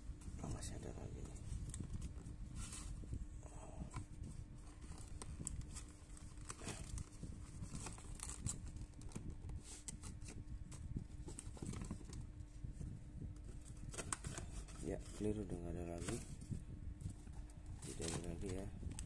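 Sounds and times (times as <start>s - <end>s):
faint steady hum: 0.0s - 19.0s
cardboard and plastic rustling: 3.8s - 19.0s.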